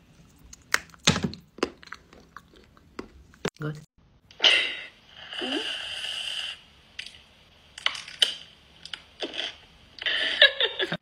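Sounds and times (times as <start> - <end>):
biting and chewing: 0.4 - 3.5.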